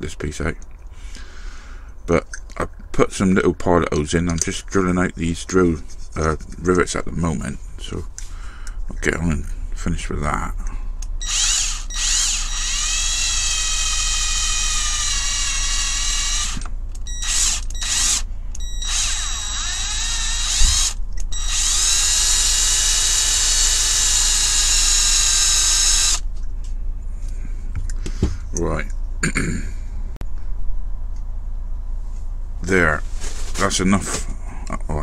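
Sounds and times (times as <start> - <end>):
cordless drill whining: 11.2 - 26.2.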